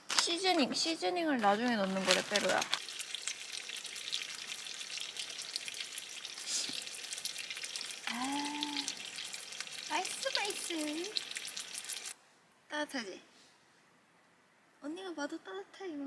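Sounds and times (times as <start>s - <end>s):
meat sizzling in grill pan: 2.0s - 12.2s.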